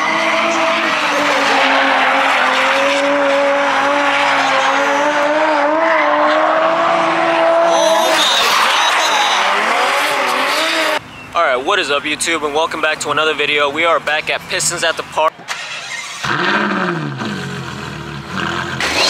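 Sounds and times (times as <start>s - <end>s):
car engine at high revs: 0.0s - 11.0s, 15.4s - 19.0s
tyres screeching: 7.6s - 11.4s.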